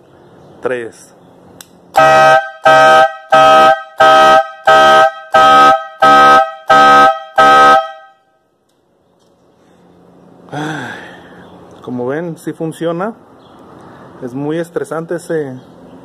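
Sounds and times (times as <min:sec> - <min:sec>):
air horn blasts: 0:01.9 - 0:08.4.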